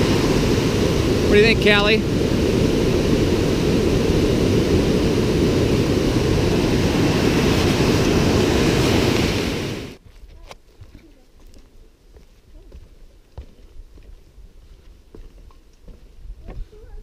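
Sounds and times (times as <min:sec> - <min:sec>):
whitewater rapids rushing: 0:00.0 - 0:10.0.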